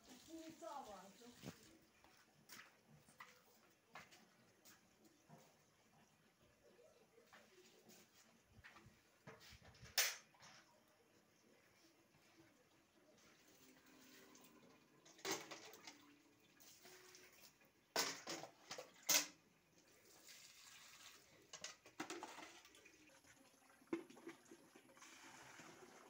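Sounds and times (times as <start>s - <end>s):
water pouring from watering can: 0.0s - 3.3s, 13.1s - 26.0s.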